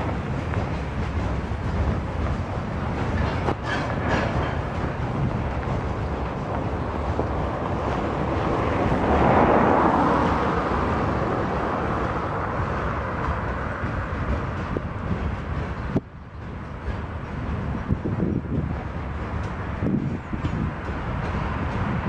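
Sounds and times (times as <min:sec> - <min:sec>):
freight train rumbling by: 0:00.0 - 0:22.0
car passing on snowy road: 0:07.2 - 0:13.2.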